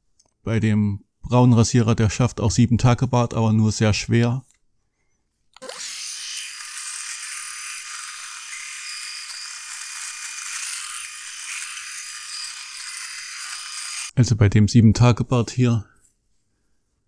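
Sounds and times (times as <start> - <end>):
electric shaver buzzing: 5.6 - 14.1.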